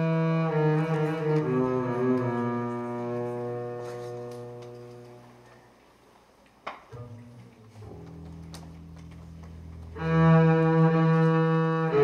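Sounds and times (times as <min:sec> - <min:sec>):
upright bass bowed low note: 0:00.0 - 0:05.2, 0:09.7 - 0:12.0.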